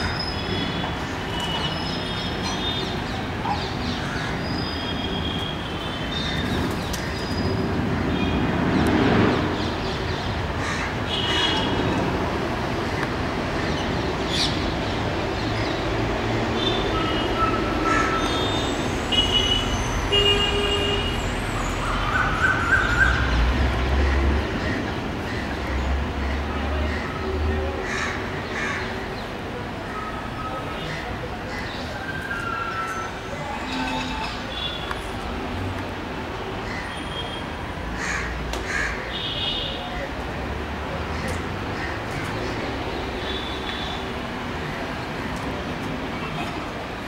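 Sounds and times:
urban background rumble: 0.0 - 47.0.

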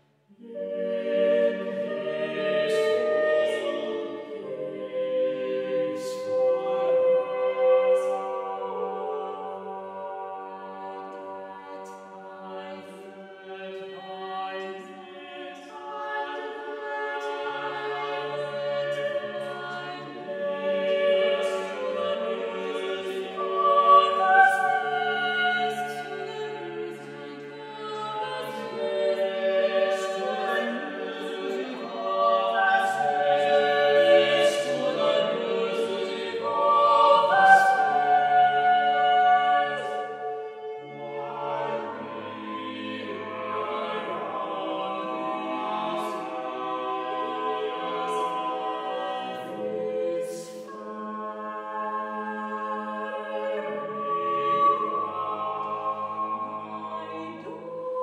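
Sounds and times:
a cappella choir singing chords: 0.0 - 58.0.

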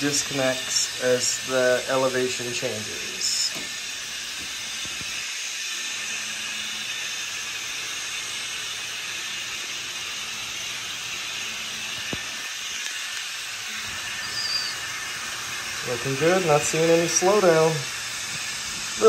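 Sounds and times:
model trains whirring: 0.0 - 19.0
brief high squeak: 14.1 - 15.0.

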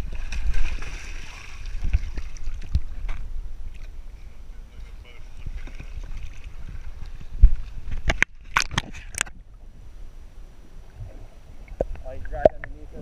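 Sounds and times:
water splashing and sloshing: 0.0 - 4.0, 4.8 - 9.4.

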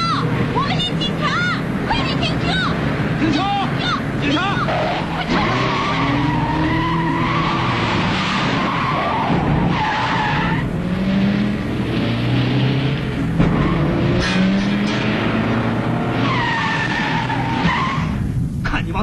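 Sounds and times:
tyres squealing: 0.0 - 10.7
car engines revving: 0.0 - 19.0.

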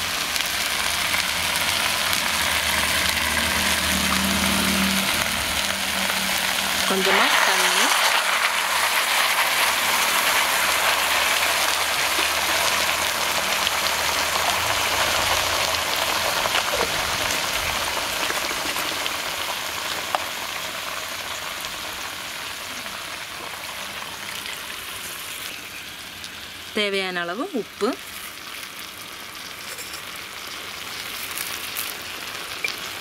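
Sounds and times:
curry sizzling in a wok: 0.0 - 33.0.

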